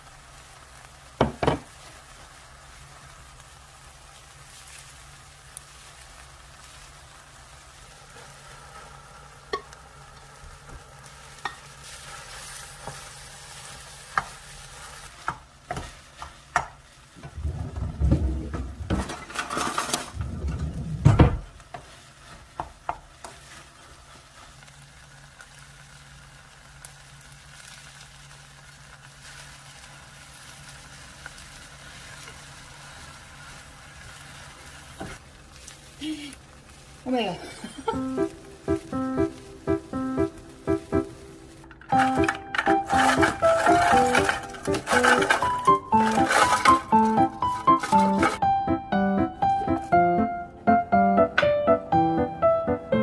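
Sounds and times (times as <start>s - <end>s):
rice sizzling in a frying pan: 0.0s - 17.8s, 18.8s - 20.4s, 21.4s - 48.8s
wooden spoon stirring and scraping: 11.4s - 20.9s, 21.7s - 24.8s, 41.9s - 48.4s.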